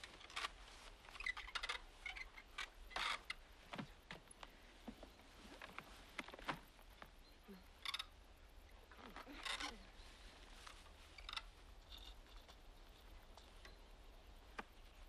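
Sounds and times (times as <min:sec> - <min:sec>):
light handling clicks and rustles: 0:08.9 - 0:15.0.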